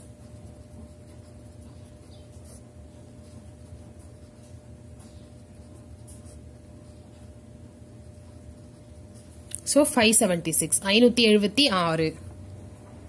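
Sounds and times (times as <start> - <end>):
pen scratching on paper: 0.0 - 7.2
low electrical hum: 0.0 - 13.0.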